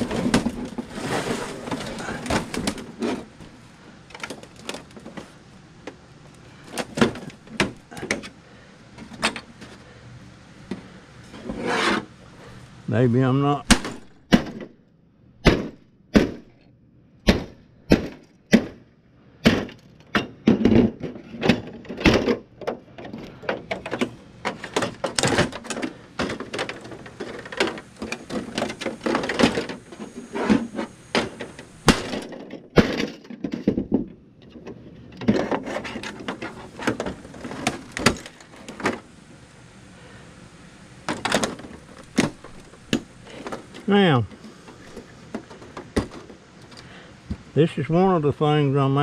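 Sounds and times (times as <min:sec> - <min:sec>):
hatchet striking plastic: 0:17.2 - 0:18.8.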